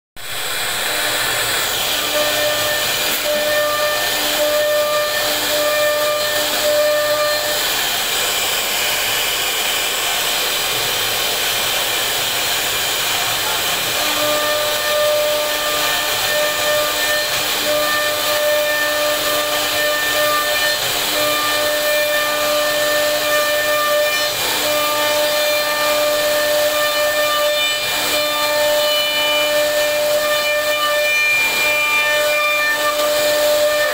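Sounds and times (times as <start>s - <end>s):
high fixed-pitch spindle whine: 0.2s - 11.6s
router bit cutting wood hiss: 0.2s - 33.9s.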